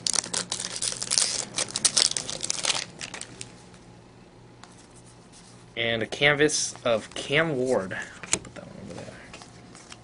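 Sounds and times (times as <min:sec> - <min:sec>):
foil wrapper crinkling and tearing: 0:00.0 - 0:03.5
faint handling of cards: 0:06.6 - 0:10.0.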